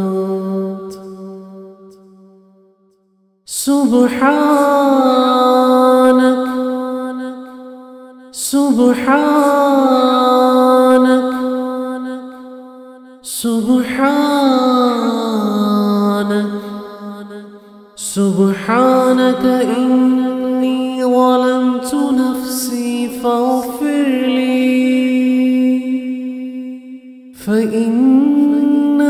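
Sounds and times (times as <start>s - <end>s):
man chanting: 3.5s - 7.4s, 8.4s - 12.2s, 13.3s - 16.9s, 18.0s - 29.0s.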